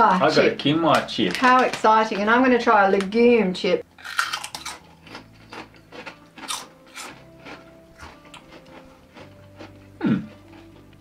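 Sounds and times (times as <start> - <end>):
chips being chewed: 3.9 - 11.0.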